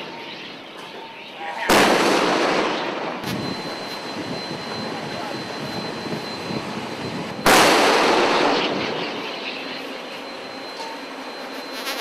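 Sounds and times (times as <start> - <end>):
distant explosion: 1.7 - 3.6, 7.4 - 9.0
wind noise on microphone: 3.2 - 7.5.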